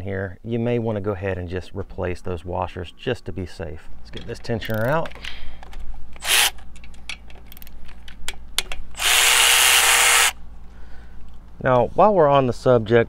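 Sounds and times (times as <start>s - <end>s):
cordless ratchet motor running: 6.2s - 6.6s, 9.0s - 10.4s.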